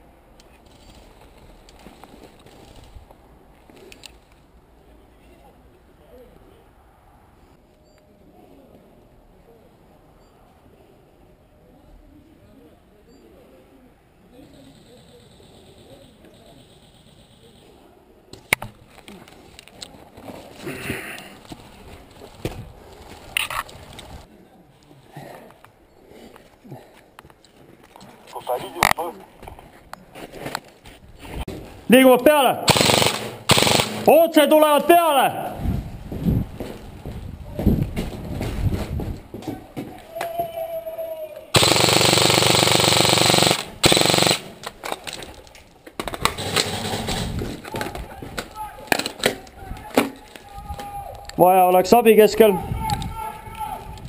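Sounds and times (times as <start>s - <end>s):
airsoft rifle full auto fire: 32.6s - 34.2s, 41.6s - 44.7s.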